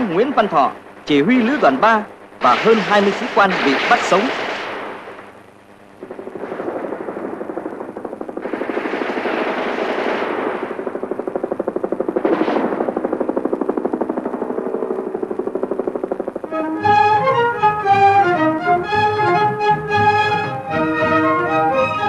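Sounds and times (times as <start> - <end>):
machine-gun fire: 0.0 - 5.4, 6.0 - 16.7.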